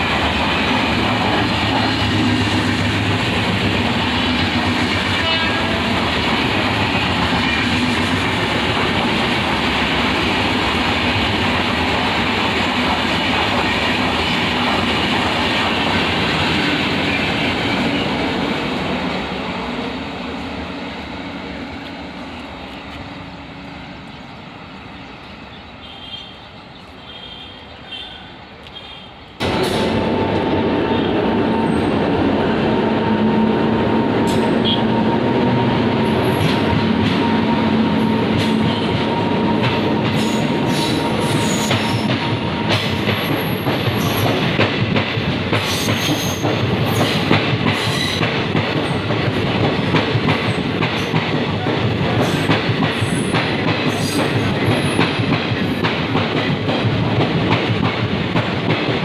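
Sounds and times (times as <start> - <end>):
train rumble: 0.0 - 59.0
locomotive whine: 14.2 - 44.2.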